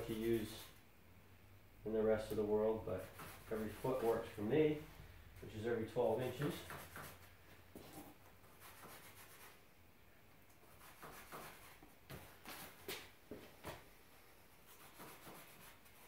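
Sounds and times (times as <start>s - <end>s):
pen scratching on foam board: 8.5s - 9.6s, 10.7s - 11.8s, 14.7s - 16.0s.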